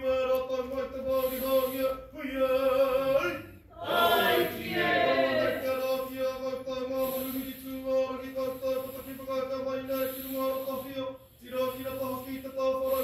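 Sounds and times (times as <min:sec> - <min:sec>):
group singing in unison: 0:03.7 - 0:05.9.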